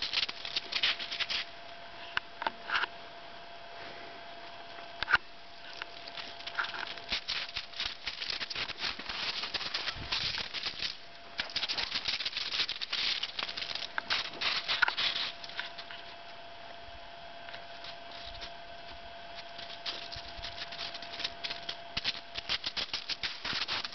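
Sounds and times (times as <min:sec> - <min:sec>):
footsteps crunching on snow: 0:00.0 - 0:01.5, 0:05.6 - 0:16.3, 0:17.5 - 0:23.9
faint steady whine: 0:00.0 - 0:23.9.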